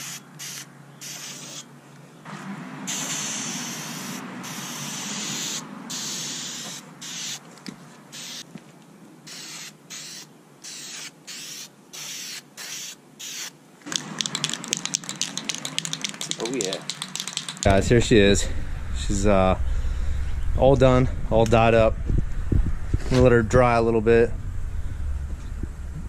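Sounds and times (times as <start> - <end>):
aerosol can spraying: 0.0 - 1.6, 2.9 - 7.4, 8.1 - 8.4, 9.3 - 17.7
aerosol mixing ball rattling: 13.9 - 17.8.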